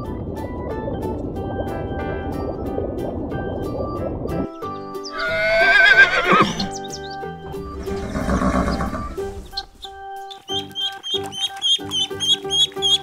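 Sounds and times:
background music: 0:00.0 - 0:13.0
horse whinnying: 0:05.1 - 0:06.8, 0:07.7 - 0:09.7.

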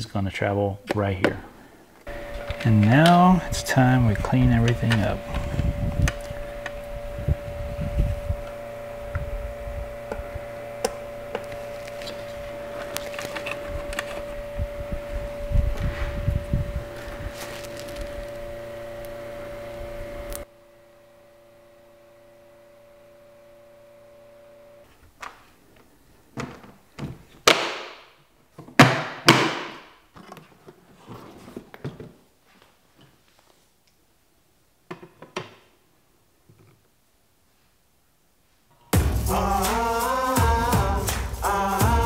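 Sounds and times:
electrical hum: 0:01.0 - 0:27.0.

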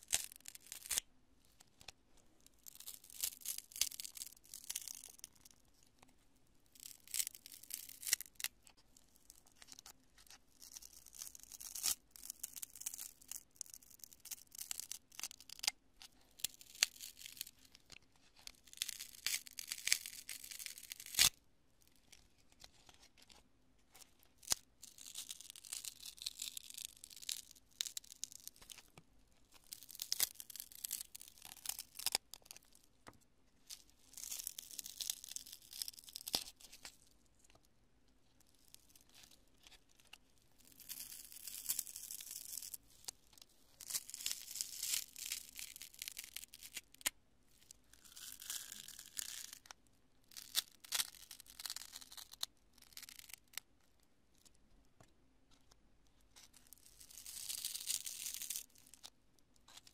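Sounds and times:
foam crunching and crackling: 0:33.8 - 0:36.8.

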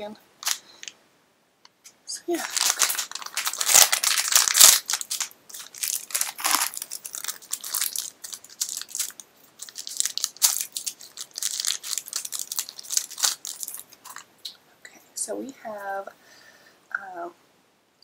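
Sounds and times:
foil wrapper crinkling: 0:00.4 - 0:00.9, 0:02.3 - 0:14.2.

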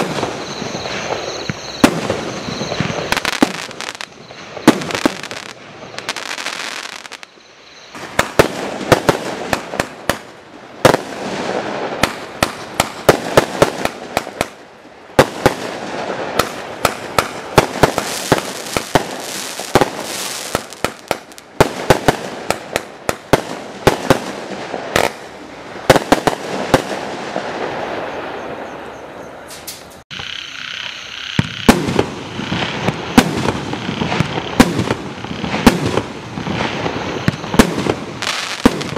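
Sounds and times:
steady high tone: 0:00.0 - 0:04.7, 0:28.5 - 0:31.7
fireworks crackle: 0:00.0 - 0:28.7, 0:29.5 - 0:38.9
fireworks bangs: 0:00.0 - 0:30.0, 0:31.3 - 0:38.9.

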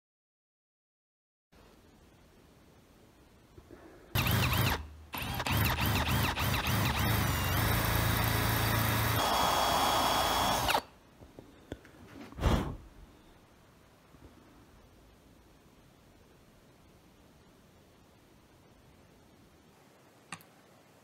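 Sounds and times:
electric drill cutting metal: 0:04.2 - 0:10.9.

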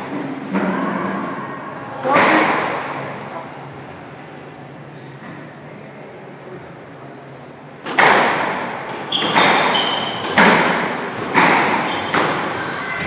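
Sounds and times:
squash ball smacks: 0:07.9 - 0:12.5
shoe squeaks on wooden floor: 0:09.1 - 0:10.4, 0:11.7 - 0:12.4.

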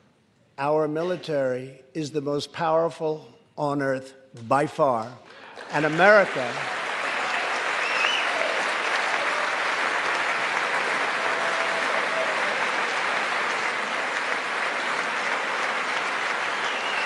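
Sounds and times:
crowd applauding: 0:05.4 - 0:17.0.

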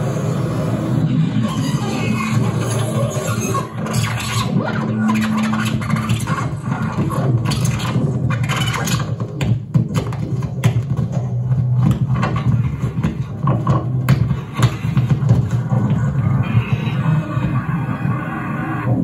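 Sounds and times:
harsh noise electronics: 0:00.0 - 0:19.0.

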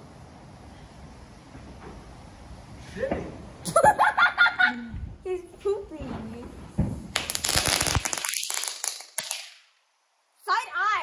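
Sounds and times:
firework crackling: 0:06.8 - 0:09.8.

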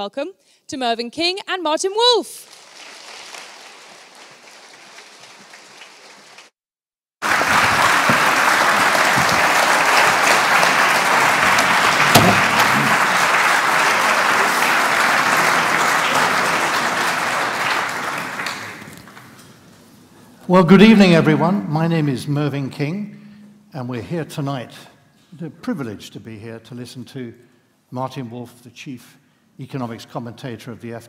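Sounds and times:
audience applauding: 0:02.5 - 0:06.5, 0:07.2 - 0:19.4.

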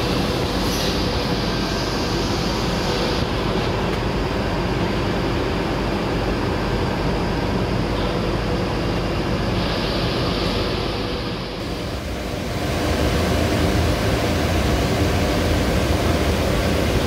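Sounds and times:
extrusion machine running: 0:09.6 - 0:17.0
low hum: 0:11.6 - 0:17.0.

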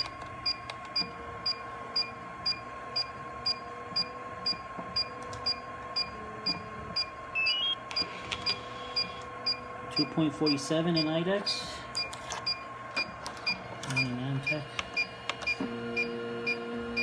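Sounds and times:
steady background hum: 0:00.0 - 0:17.0
short high beeps: 0:07.4 - 0:07.8.

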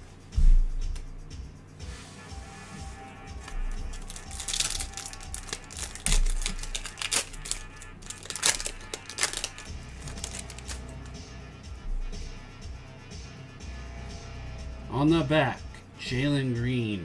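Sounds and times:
foil wrapper crinkling: 0:03.4 - 0:11.1.

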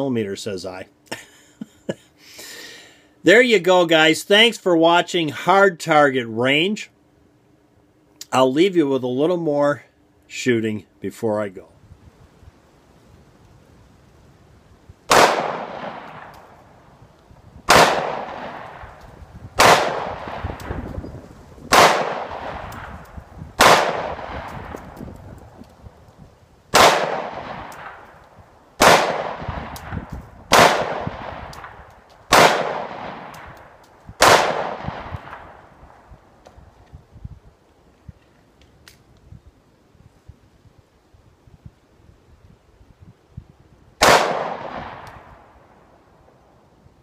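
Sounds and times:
pistol shots with echo: 0:15.1 - 0:16.6, 0:17.7 - 0:19.0, 0:19.6 - 0:20.8, 0:21.7 - 0:22.9, 0:23.6 - 0:24.6, 0:26.7 - 0:28.1, 0:28.8 - 0:33.6, 0:34.2 - 0:35.6, 0:44.0 - 0:45.4.

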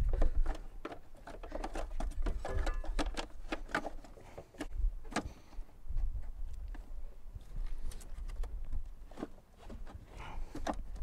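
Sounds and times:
plastic clicks and knocks: 0:00.0 - 0:04.0.

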